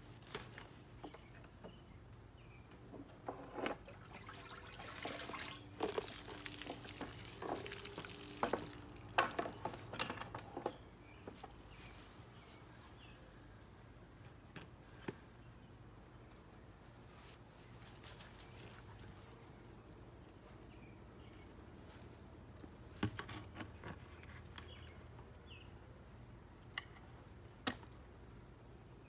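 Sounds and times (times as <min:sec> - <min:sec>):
water splashing and dripping: 0:03.8 - 0:10.3.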